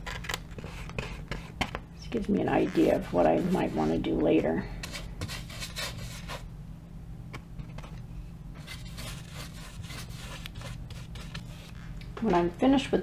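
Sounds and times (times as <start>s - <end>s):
paintbrush rubbing on canvas: 2.3s - 6.5s, 8.6s - 11.9s.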